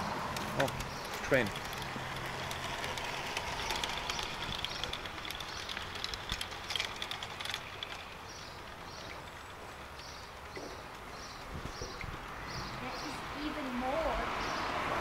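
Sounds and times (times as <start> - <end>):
model train clattering on track: 0.6 - 8.4.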